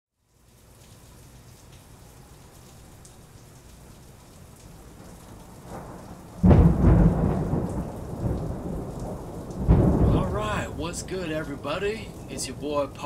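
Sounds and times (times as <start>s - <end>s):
steady rain hiss: 0.1s - 13.0s
thunder crack and rumble: 5.6s - 11.6s.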